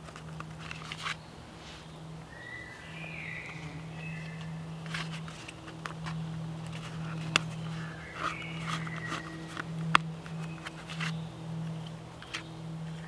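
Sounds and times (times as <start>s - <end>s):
root cord rubbing against bark: 2.9s - 13.0s.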